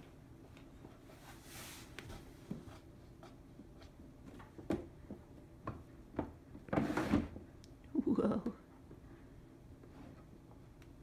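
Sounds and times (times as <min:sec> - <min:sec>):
soft rustle: 0:00.5 - 0:02.9.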